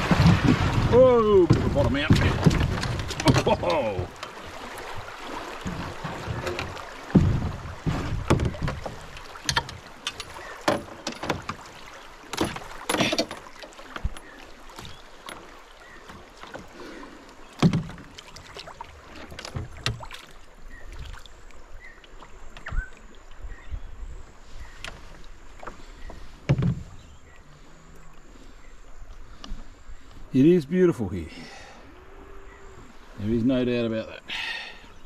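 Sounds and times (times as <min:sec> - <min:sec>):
canoe hull scraping over rocks: 0:00.0 - 0:21.0, 0:24.5 - 0:27.8
water rushing along hull: 0:00.0 - 0:35.0.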